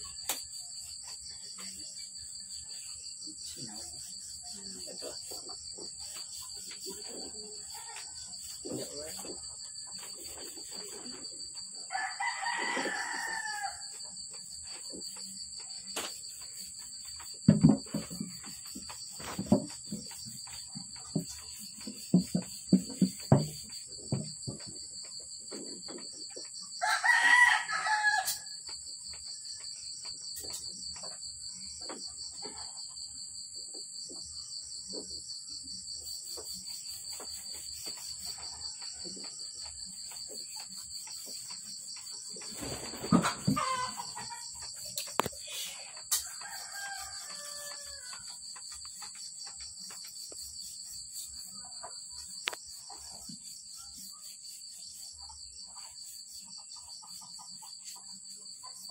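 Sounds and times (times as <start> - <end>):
insects chirring: 0.0 - 58.9
rooster crowing: 11.9 - 14.0, 26.8 - 28.6, 46.2 - 48.3
chickens clucking: 42.4 - 45.8.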